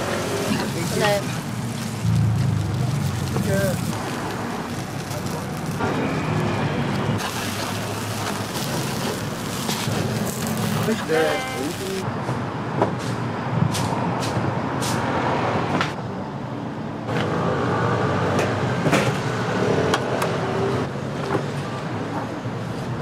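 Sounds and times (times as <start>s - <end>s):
street traffic rumble: 0.0s - 23.0s.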